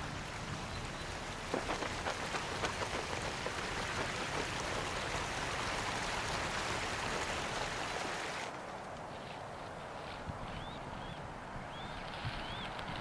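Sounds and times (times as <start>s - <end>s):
water rushing through dam gates: 0.0s - 8.5s.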